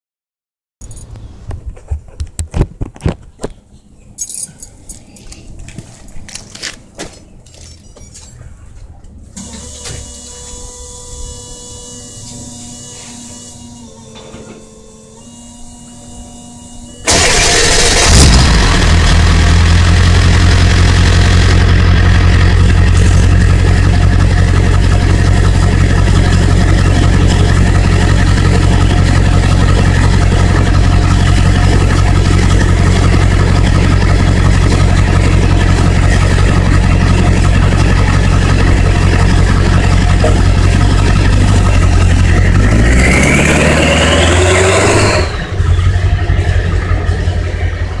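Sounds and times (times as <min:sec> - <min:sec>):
diesel engine idling and revving: 0:15.3 - 0:48.0.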